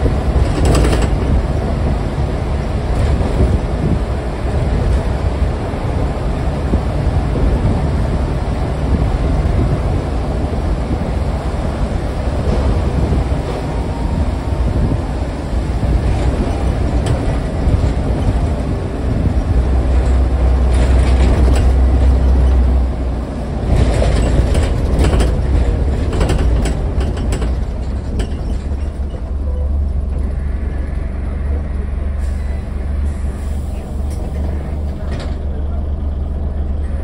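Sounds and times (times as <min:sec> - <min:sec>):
bus diesel engine drone: 0:00.0 - 0:37.0.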